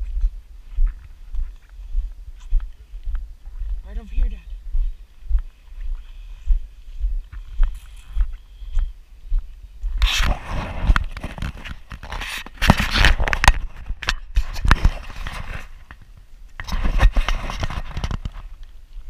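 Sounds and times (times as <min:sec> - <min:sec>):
rustling through brush: 0:04.9 - 0:19.0.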